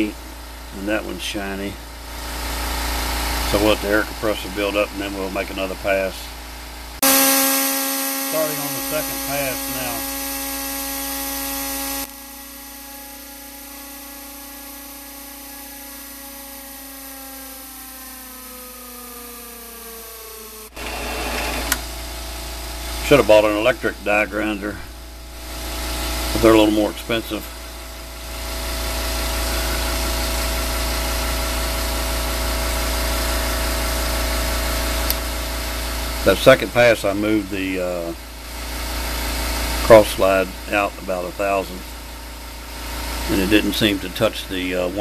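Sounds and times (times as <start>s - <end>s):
die grinder grinding metal: 1.4s - 6.2s, 7.0s - 27.7s, 42.7s - 45.0s
lathe motor whine: 1.9s - 36.6s
loud air hiss: 8.1s - 10.6s.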